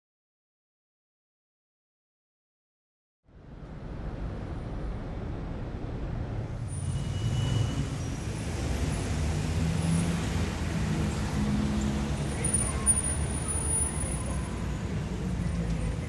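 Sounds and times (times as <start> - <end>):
road traffic hum: 3.3 - 16.0.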